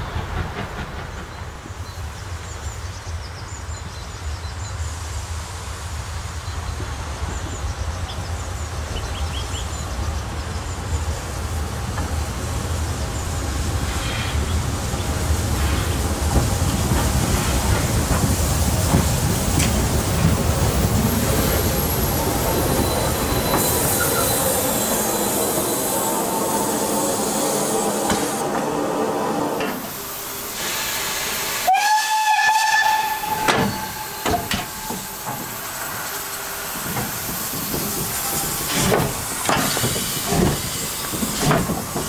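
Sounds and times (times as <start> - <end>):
steam train rumbling: 0.0 - 42.0
loud hiss of steam: 1.5 - 42.0
wheels and brakes squealing: 20.6 - 29.6, 32.8 - 36.2.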